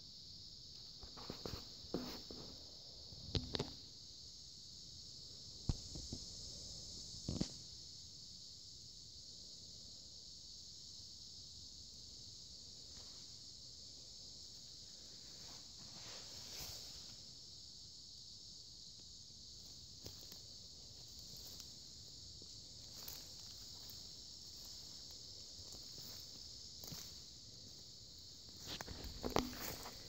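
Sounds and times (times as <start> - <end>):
high-pitched insect chorus: 0.0 - 30.0
soft footsteps: 22.4 - 30.0.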